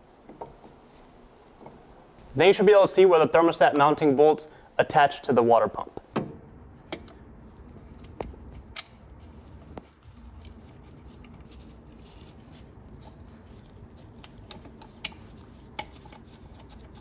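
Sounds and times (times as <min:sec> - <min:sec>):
faint clicks and metallic taps: 0:14.2 - 0:16.2.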